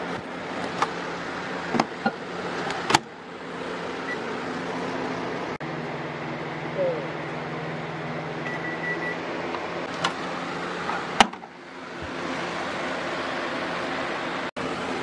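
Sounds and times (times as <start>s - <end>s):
microwave oven humming: 0.0s - 15.0s
microwave timer beep: 4.0s - 4.3s, 8.4s - 9.3s.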